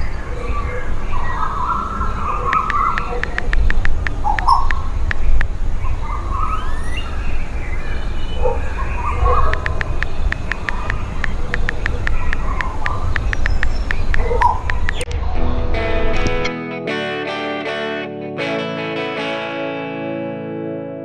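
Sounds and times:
wind on microphone: 0.0s - 16.3s
sharp clicks: 2.5s - 5.6s, 9.4s - 15.1s
short whistling calls: 5.8s - 7.3s.

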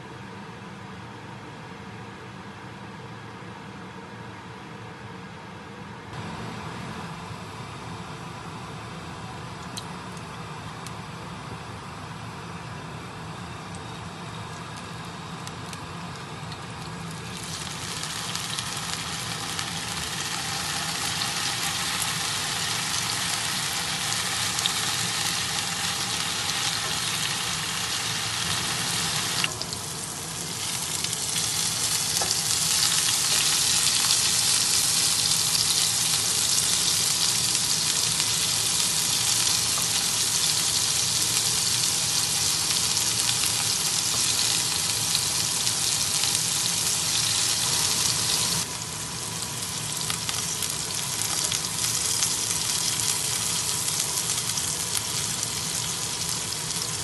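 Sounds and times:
tofu sizzling in hot oil: 16.5s - 57.0s.

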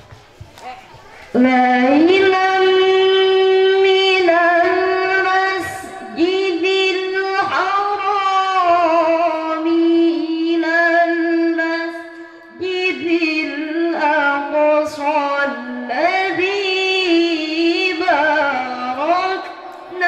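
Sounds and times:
woman reciting melodically: 0.6s - 20.0s
breath: 12.1s - 12.6s.

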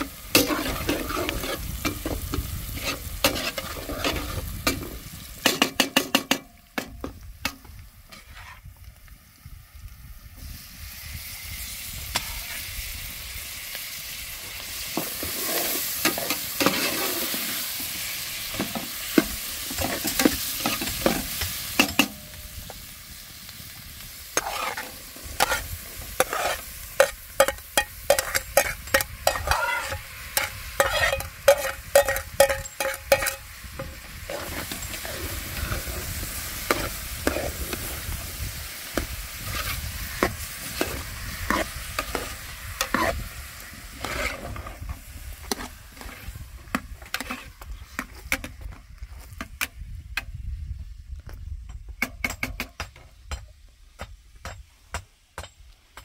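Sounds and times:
food sizzling in a pan: 0.0s - 6.9s, 10.2s - 47.5s
spoon scraping against pan: 0.3s - 4.9s, 8.1s - 8.6s, 15.0s - 17.6s, 24.4s - 38.0s, 39.4s - 43.3s, 43.9s - 44.8s, 47.0s - 48.5s.

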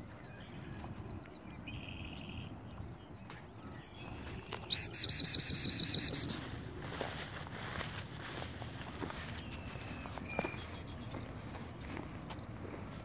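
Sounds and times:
faint outdoor background: 0.0s - 13.0s
high whistled notes: 4.7s - 6.5s.

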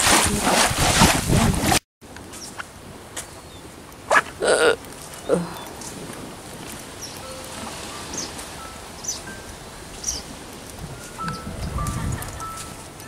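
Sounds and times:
wind buffeting microphone: 0.0s - 1.8s, 5.0s - 13.0s.

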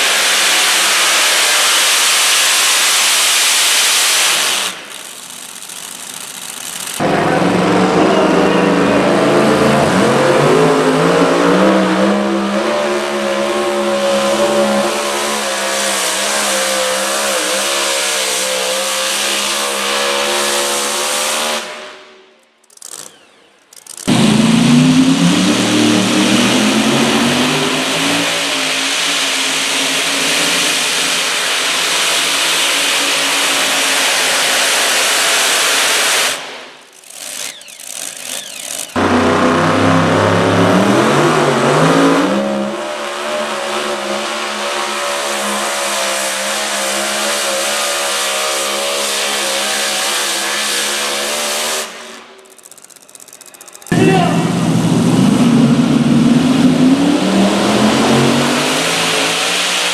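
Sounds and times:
truck engines at full throttle: 0.0s - 59.9s.

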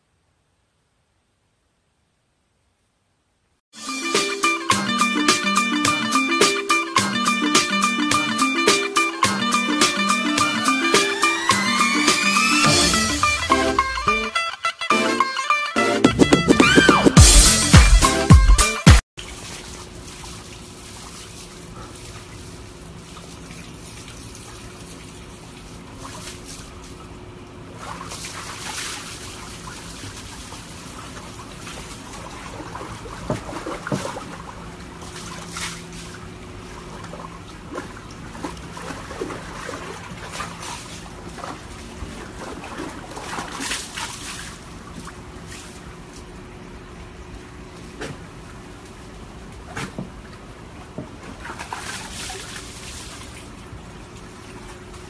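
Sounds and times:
water sloshing in a tub: 19.2s - 55.0s
water splashes: 19.2s - 55.0s.

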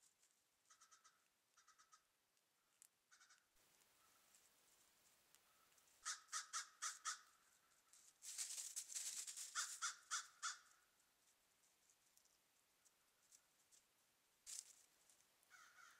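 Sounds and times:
rustling noise: 3.6s - 6.0s, 7.4s - 9.9s, 11.1s - 15.3s.

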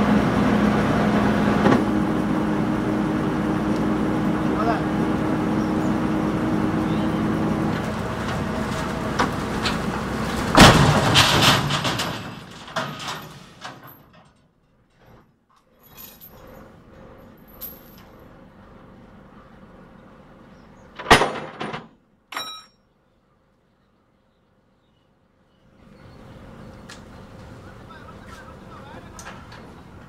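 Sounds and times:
lorry crashing onto its wheels: 7.6s - 15.3s
rattling and clattering: 7.7s - 18.1s.

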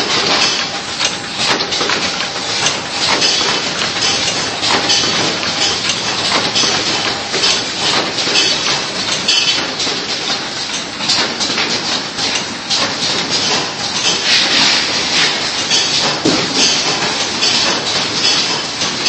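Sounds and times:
machine clattering: 0.0s - 19.0s.

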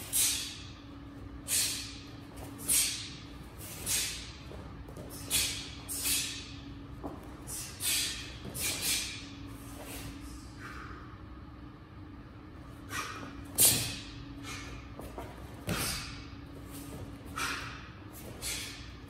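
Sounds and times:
steady low hum: 0.0s - 19.0s
short sharp hisses: 7.5s - 9.2s.

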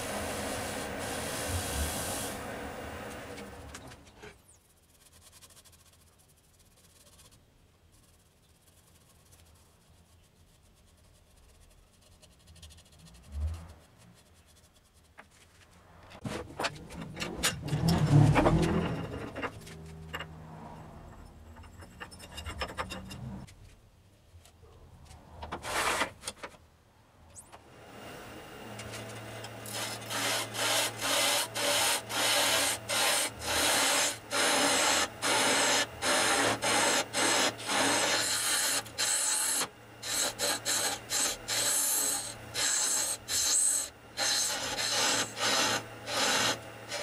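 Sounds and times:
metal clicking and scraping: 16.1s - 23.8s.

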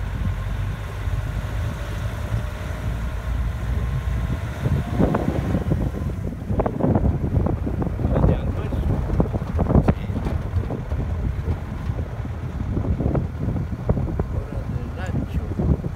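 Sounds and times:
engine and tyre rumble: 0.0s - 15.9s
wind buffeting microphone: 0.0s - 15.9s.

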